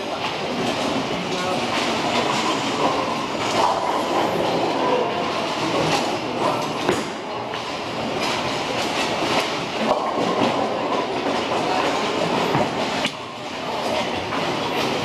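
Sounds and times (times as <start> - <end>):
bowling balls rolling: 0.0 - 15.0
bowling pins clattering: 0.0 - 15.0.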